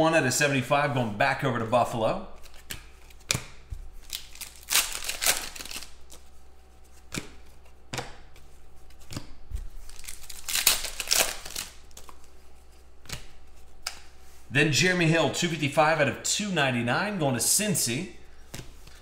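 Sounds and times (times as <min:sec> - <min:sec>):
trading cards rustling: 0:01.0 - 0:14.5.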